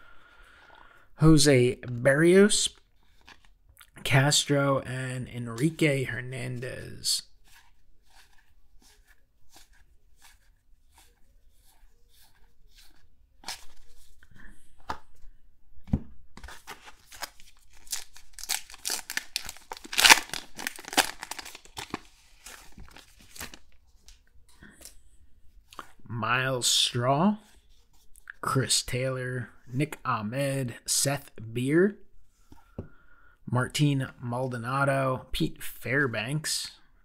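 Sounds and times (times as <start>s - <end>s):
card pack wrapper crinkling and tearing: 16.4s - 24.2s.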